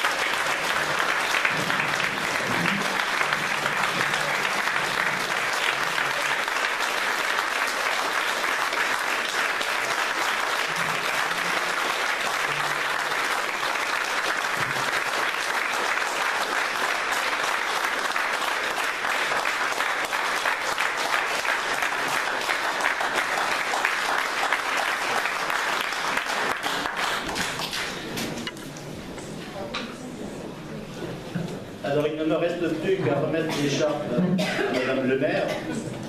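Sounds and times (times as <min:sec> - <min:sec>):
roomful of people clapping: 0:00.0 - 0:29.0.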